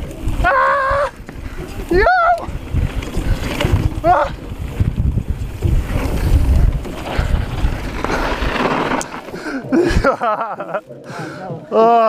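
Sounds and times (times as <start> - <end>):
wind buffeting microphone: 0.0 - 10.4
bike tyres rumbling over ground: 0.0 - 12.0
tyres hissing on loose dirt: 2.6 - 10.2.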